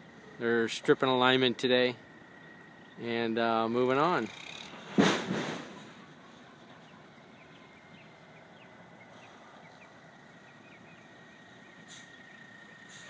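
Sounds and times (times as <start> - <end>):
small birds chirping: 2.0 - 4.8, 5.9 - 13.0.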